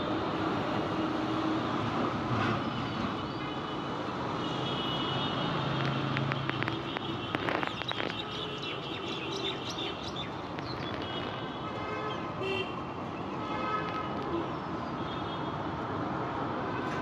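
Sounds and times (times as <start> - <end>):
street traffic noise: 0.0 - 17.0
birds chirping: 7.5 - 11.2.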